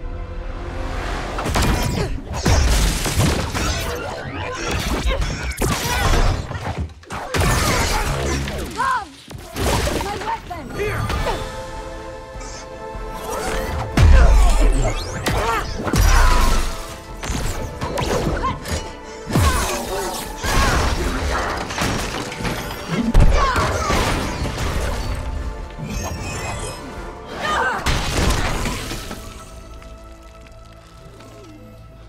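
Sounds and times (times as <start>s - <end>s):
film soundtrack music: 0.0s - 32.0s
smashing and shattering impacts: 1.4s - 10.4s, 20.4s - 25.4s, 27.9s - 29.8s.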